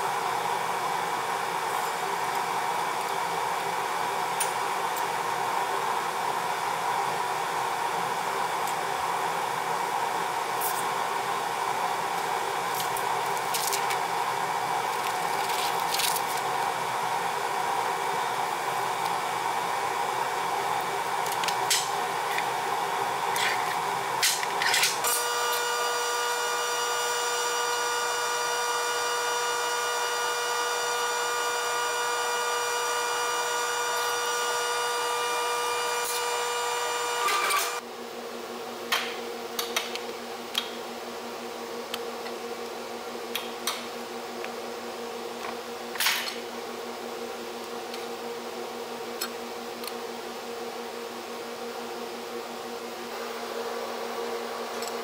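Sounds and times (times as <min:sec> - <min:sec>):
metal shear motor whine: 0:15.6 - 0:37.8.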